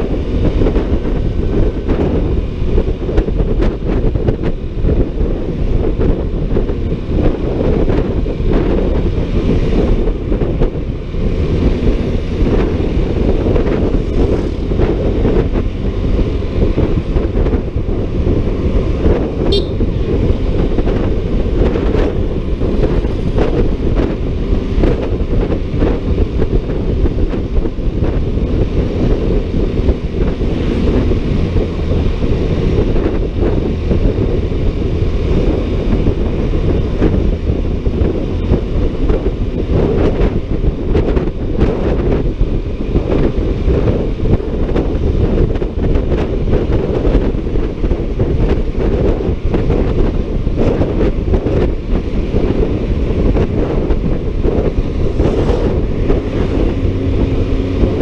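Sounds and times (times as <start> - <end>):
road noise: 0.0 - 58.0
wind rushing over microphone: 0.0 - 58.0
scooter engine: 8.8 - 39.5.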